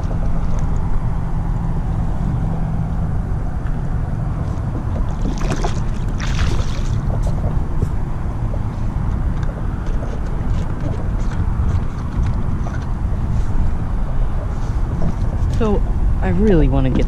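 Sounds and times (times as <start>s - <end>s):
low rumble of wind and water: 0.0s - 17.0s
fish splashing in water: 4.4s - 8.7s.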